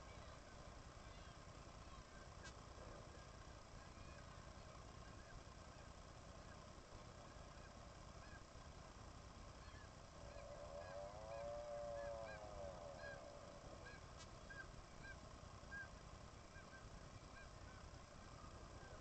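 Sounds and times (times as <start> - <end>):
short high seabird calls: 9.6 - 15.9
long seabird call: 9.6 - 17.6.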